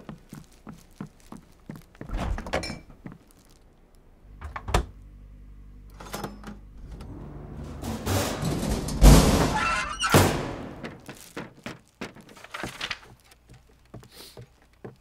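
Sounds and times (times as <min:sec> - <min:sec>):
footsteps on hard floor: 0:00.0 - 0:03.4, 0:10.7 - 0:15.0
fridge humming: 0:04.0 - 0:11.0.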